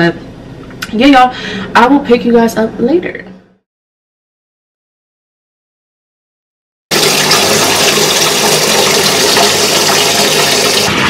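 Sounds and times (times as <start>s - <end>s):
water gushing into bathtub: 6.9s - 11.0s.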